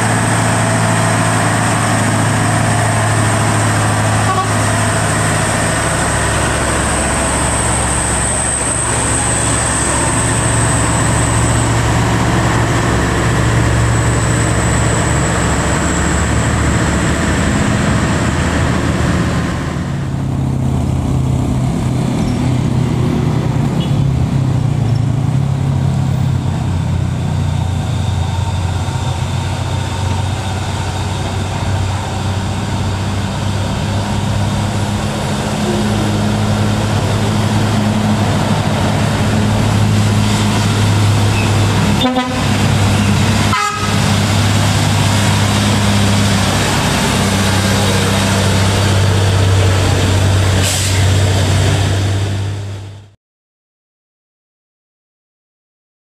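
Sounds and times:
diesel truck engines pulling uphill: 0.0s - 53.2s.

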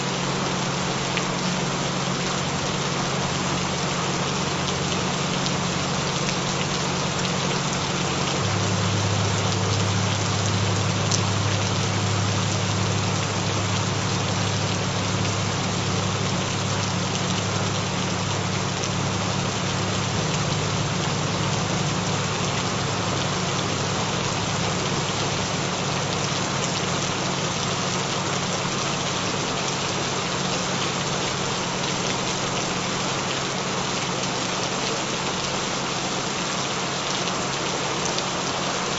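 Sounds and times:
gentle rain patter: 0.0s - 38.9s
low drone tones: 4.5s - 29.4s.

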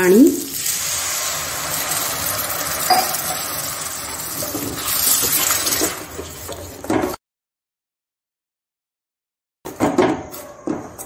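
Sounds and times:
liquid sizzling in hot pan: 0.0s - 7.2s
spoon clinking against pan: 2.9s - 3.3s.

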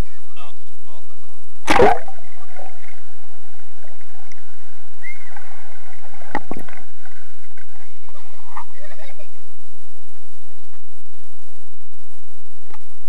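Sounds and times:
muffled underwater water noise: 0.0s - 13.0s
child splashing: 1.7s - 2.2s.

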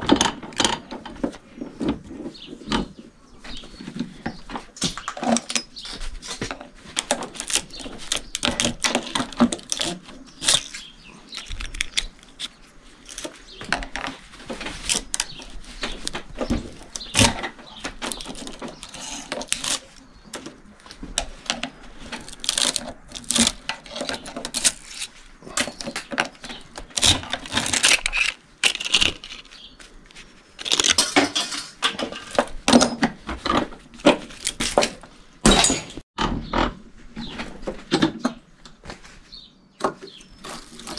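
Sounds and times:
wire scraping: 4.9s - 36.0s.

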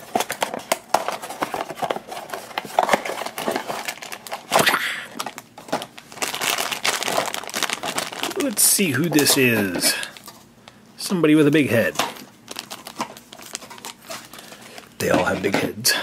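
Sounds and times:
foil bag crackling: 0.0s - 10.8s, 11.5s - 15.5s
packaging crinkling and rustling: 0.0s - 10.8s, 11.4s - 15.8s.

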